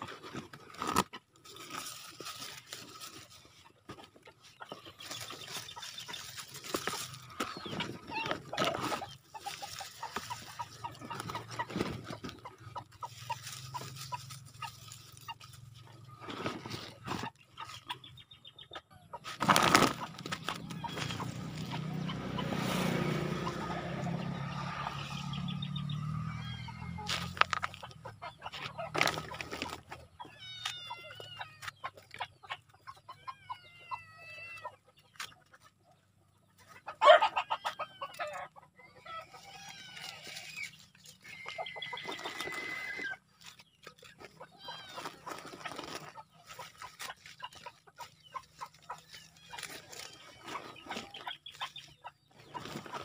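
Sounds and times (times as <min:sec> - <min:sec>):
chickens clucking: 0:00.0 - 0:53.0.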